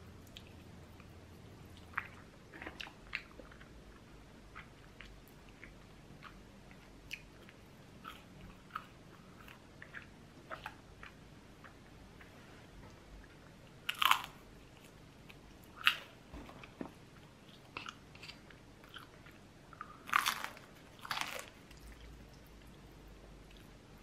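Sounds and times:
crunching and chewing fried food: 13.8 - 16.2, 17.4 - 22.5.

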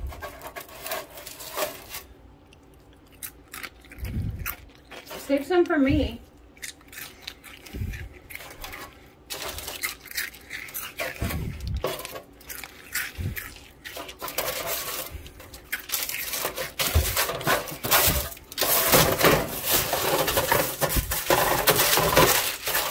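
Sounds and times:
parchment paper crinkling: 0.0 - 2.2, 13.5 - 22.9.

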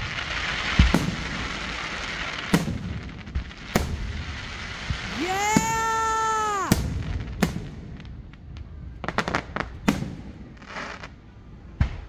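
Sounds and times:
firework sharp pops: 0.0 - 6.0, 6.6 - 8.4, 11.8 - 12.0
firework bangs: 0.0 - 11.2
firework crackle: 0.0 - 12.0
firework whistle: 4.9 - 7.0.

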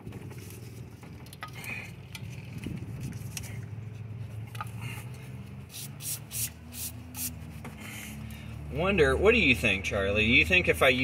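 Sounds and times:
aerosol spray hissing: 5.7 - 7.4.

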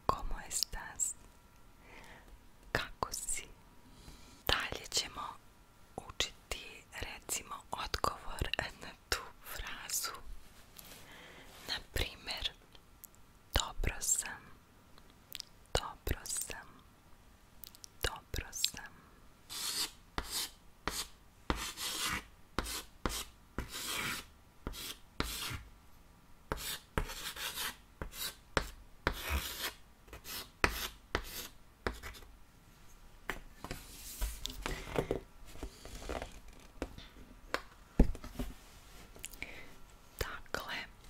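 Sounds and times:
chalk scratching on chalkboard: 19.5 - 25.6, 26.5 - 32.3.

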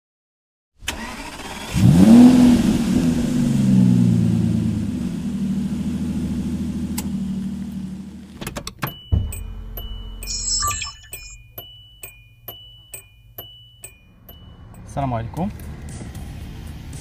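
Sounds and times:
car engine starting and revving: 0.8 - 8.5, 14.5 - 17.0.

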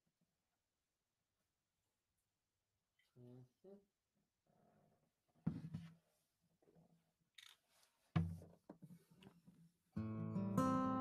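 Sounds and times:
guitar handling knocks and thumps: 8.2 - 8.8
acoustic guitar chord ringing: 10.0 - 11.0.

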